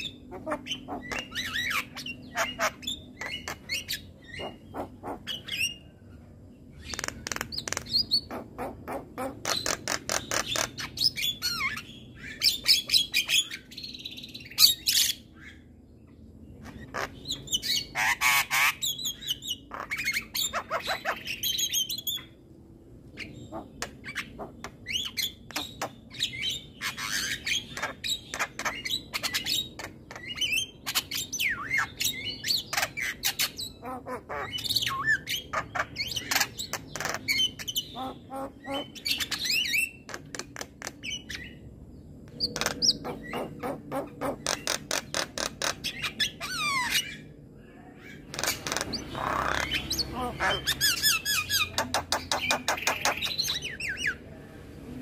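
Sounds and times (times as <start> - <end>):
bird singing with clicks and whistles: 0.0 - 5.9, 6.8 - 8.4, 23.2 - 33.8, 42.3 - 47.3, 48.2 - 54.2.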